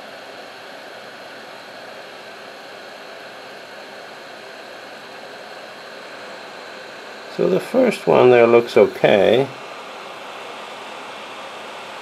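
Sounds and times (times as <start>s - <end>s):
hot air blower hissing: 0.0s - 12.0s.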